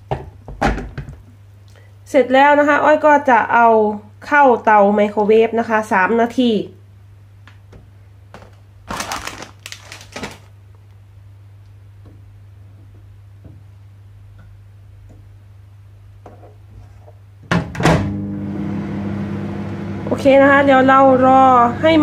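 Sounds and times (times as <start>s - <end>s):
plastic packet crinkling: 8.4s - 10.6s.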